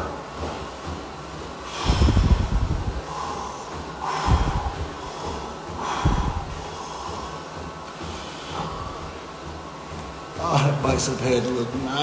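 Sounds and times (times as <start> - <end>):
faint breaths: 1.6 - 10.0.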